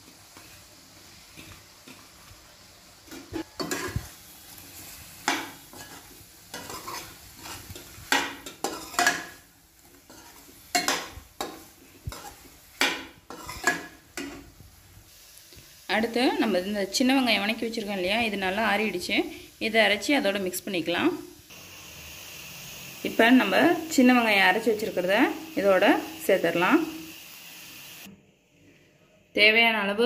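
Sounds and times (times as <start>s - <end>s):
low sizzle: 0.0s - 28.2s
metal spatula scraping a pan: 3.1s - 14.5s.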